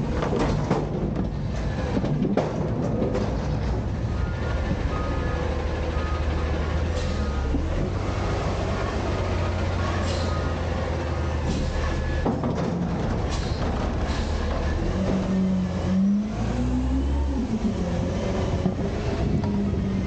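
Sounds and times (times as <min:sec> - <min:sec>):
metal clanks and rattles: 0:00.0 - 0:04.1, 0:11.4 - 0:15.4
garbage truck engine running: 0:00.0 - 0:20.0.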